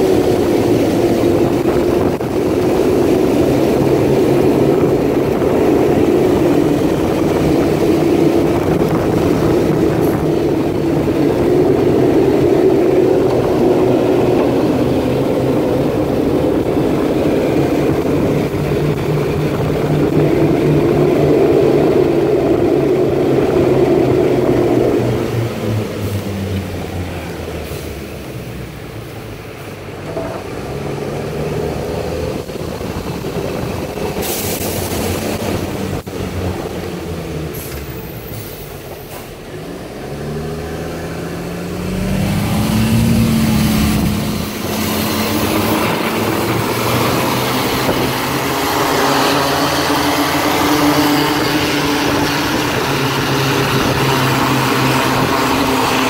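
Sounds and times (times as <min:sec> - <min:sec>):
tyres hissing on wet pavement: 0:30.8 - 0:56.0.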